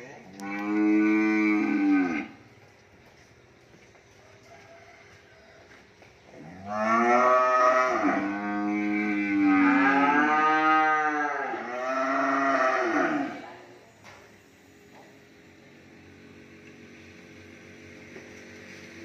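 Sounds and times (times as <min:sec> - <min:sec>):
cow mooing: 0:00.3 - 0:02.4, 0:06.4 - 0:13.5.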